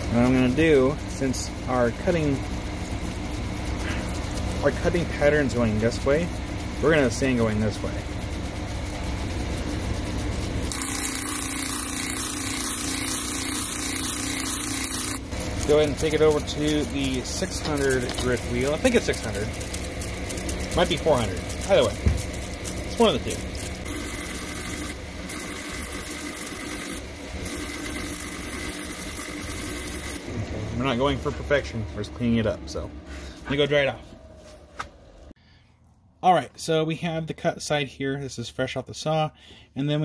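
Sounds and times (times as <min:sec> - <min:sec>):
drum sander running: 0:00.0 - 0:34.4
harsh grinding hiss: 0:10.7 - 0:19.8.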